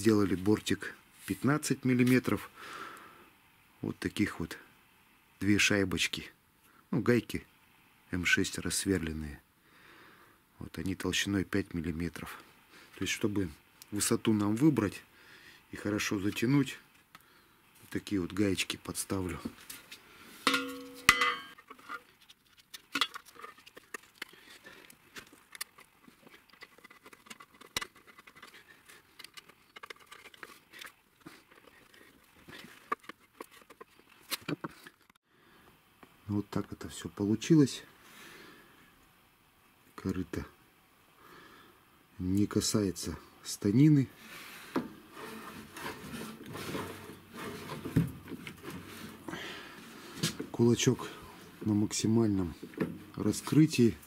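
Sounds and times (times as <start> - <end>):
metal knock: 20.5 - 21.6
sheet metal tray clanging: 20.5 - 21.6.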